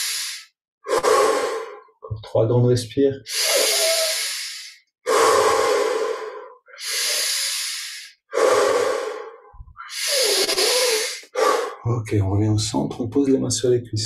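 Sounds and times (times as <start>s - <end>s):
man breathing deeply: 0.0s - 2.0s, 3.3s - 11.8s.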